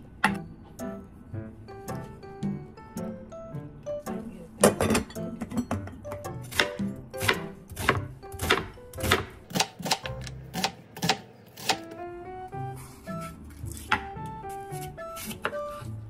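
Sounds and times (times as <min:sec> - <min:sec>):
background music with picked melody: 0:00.1 - 0:10.4, 0:11.6 - 0:16.0
knife chopping on cutting board: 0:06.5 - 0:11.9, 0:14.8 - 0:15.6.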